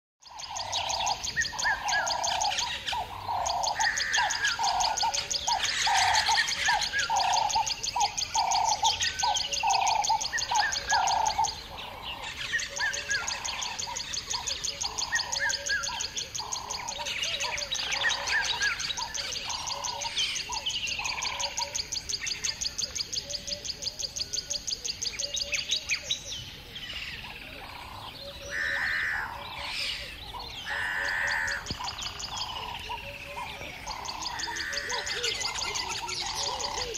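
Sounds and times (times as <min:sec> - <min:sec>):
birds chirping: 0:00.2 - 0:36.9
low bird call: 0:27.0 - 0:36.9.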